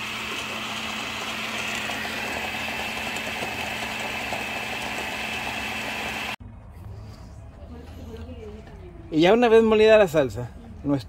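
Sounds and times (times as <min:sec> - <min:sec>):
blender running with high whine: 0:00.0 - 0:06.4.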